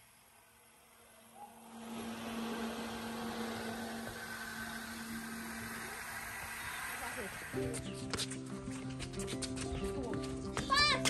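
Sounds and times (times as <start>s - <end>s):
diesel engine humming: 1.4s - 7.8s.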